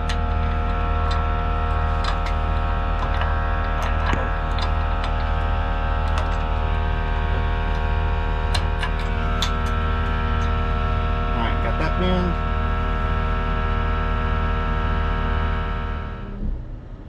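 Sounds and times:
diesel engine idling: 0.0s - 16.8s.

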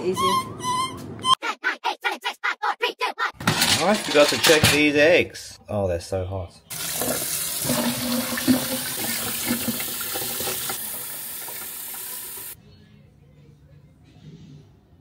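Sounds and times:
tap water running into tub: 6.7s - 12.6s.

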